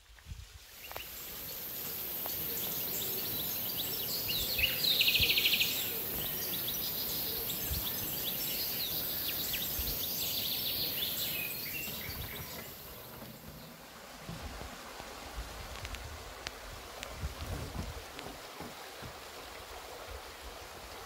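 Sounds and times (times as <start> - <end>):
small birds chirping: 0.7 - 13.9.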